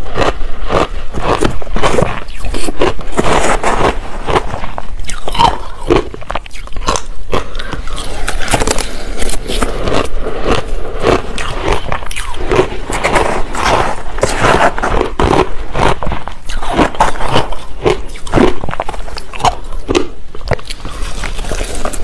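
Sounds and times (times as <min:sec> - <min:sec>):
crunching ice chewing: 0:00.0 - 0:22.0.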